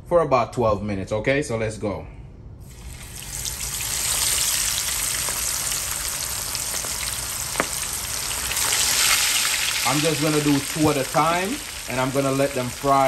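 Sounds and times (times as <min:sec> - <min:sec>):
wings frying in hot oil: 0:02.6 - 0:13.0.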